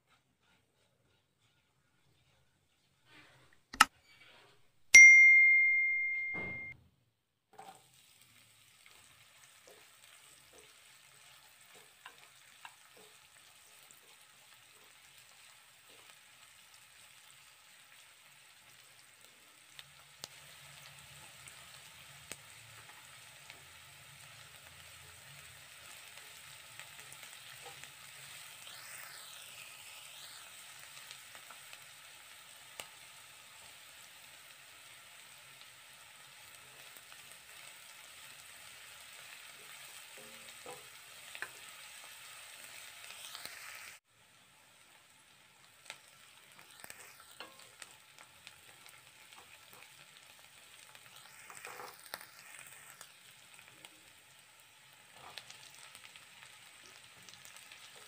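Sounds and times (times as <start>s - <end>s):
spatula stirring in a pan: 0.0s - 4.7s, 7.5s - 58.0s
sharp metal clang: 5.0s - 6.7s
onions sizzling in oil: 7.5s - 58.0s.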